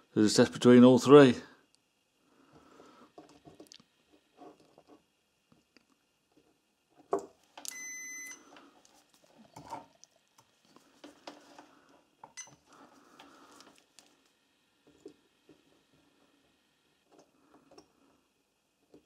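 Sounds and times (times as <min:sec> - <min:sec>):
multimeter beep: 0:07.7 - 0:08.4.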